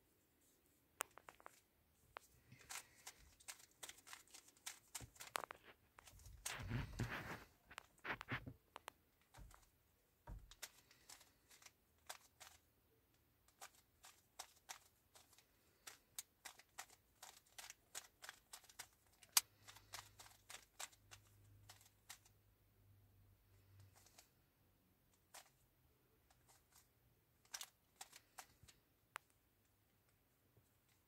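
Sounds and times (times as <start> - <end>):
puzzle cube clicking: 2.5 - 7.0, 10.4 - 12.6, 13.5 - 22.3, 27.4 - 28.8.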